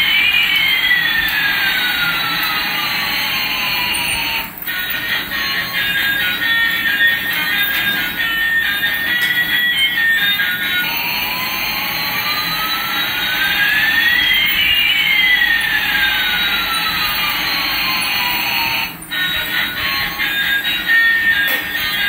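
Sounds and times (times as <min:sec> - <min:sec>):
toy jet engine sound effect: 0:00.0 - 0:22.0.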